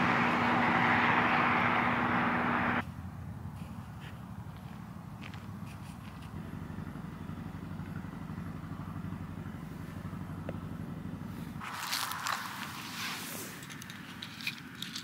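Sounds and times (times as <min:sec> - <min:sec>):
low engine-like rumble: 0:00.0 - 0:15.0
hissy rustling noise: 0:11.6 - 0:14.9.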